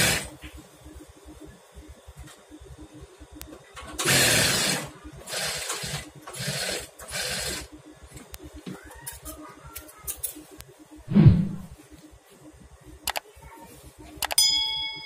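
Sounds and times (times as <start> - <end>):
sewing machine stitching: 4.0 - 7.7.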